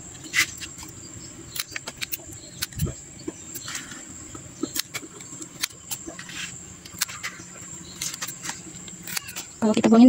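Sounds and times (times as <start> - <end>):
scissors snipping stalks: 1.5 - 4.0, 4.6 - 9.6.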